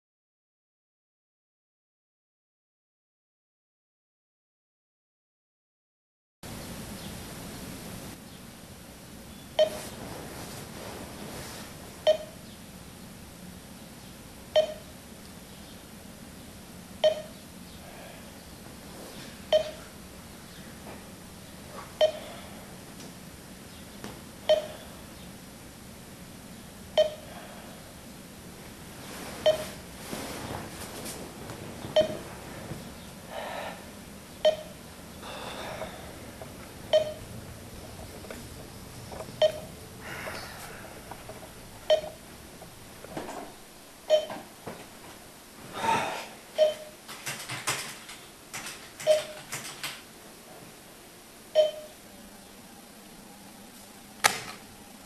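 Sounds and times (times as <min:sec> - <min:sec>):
electronic alarm beeping: 0:12.0 - 0:12.4, 0:14.6 - 0:14.9, 0:17.0 - 0:17.4, 0:19.5 - 0:19.8, 0:24.5 - 0:24.9, 0:27.0 - 0:27.3, 0:29.4 - 0:29.8, 0:32.0 - 0:32.2, 0:34.4 - 0:34.8, 0:36.9 - 0:37.3, 0:39.4 - 0:39.8, 0:41.9 - 0:42.3, 0:44.1 - 0:44.4, 0:46.6 - 0:47.0, 0:51.6 - 0:52.0.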